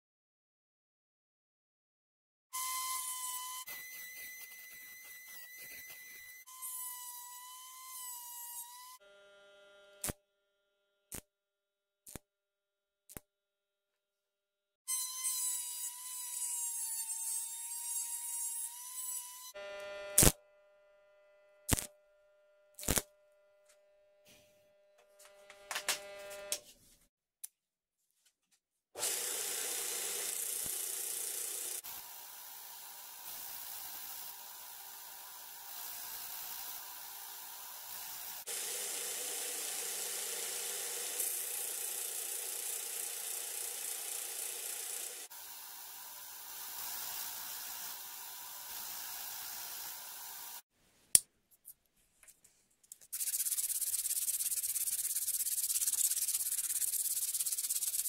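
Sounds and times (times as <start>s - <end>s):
belt grinder hissing on steel: 29.1s - 50.7s
hissy sanding: 53.2s - 58.0s.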